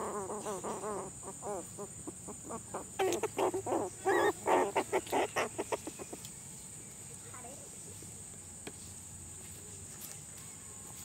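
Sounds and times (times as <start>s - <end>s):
puppies whining and yelping: 2.5s - 6.2s.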